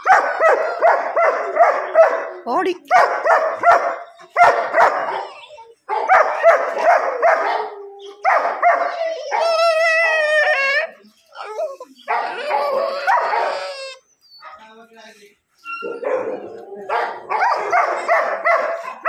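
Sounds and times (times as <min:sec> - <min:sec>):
dog wavering cry: 0:00.0 - 0:02.5, 0:06.3 - 0:14.6, 0:15.6 - 0:19.0
dogs barking: 0:00.0 - 0:10.1, 0:11.9 - 0:14.7, 0:15.8 - 0:19.0.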